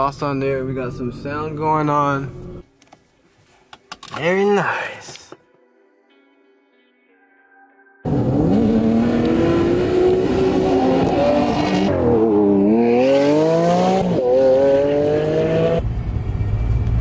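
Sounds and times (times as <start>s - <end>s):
sports car engines revving: 8.1s - 15.8s.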